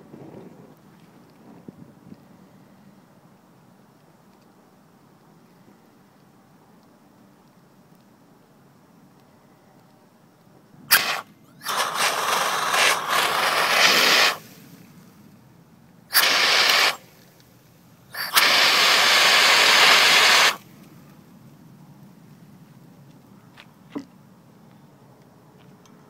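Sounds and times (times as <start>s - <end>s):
hissing spray bursts: 10.9s - 15.0s, 16.1s - 17.2s, 18.1s - 20.7s.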